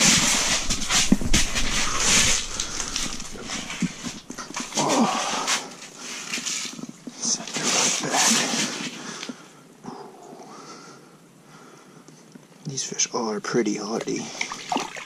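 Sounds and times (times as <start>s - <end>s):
water splashing and sloshing: 0.0s - 9.0s, 14.0s - 15.0s.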